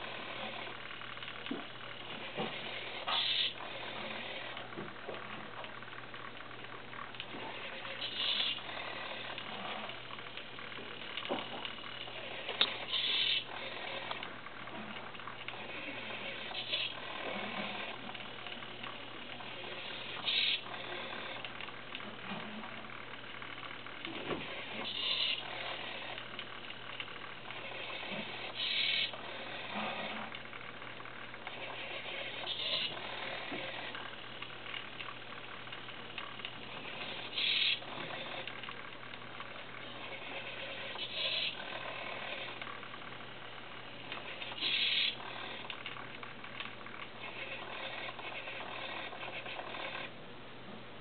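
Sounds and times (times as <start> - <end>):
steady low hum: 0.0 - 51.0
servos whirring: 7.3 - 11.3, 24.4 - 26.4, 31.4 - 34.1, 36.4 - 38.6, 39.8 - 42.7, 44.0 - 45.9
high-pitched servo buzzes: 8.0 - 8.6, 12.9 - 13.5, 24.8 - 25.4, 28.6 - 29.1, 37.3 - 37.8, 44.6 - 45.2.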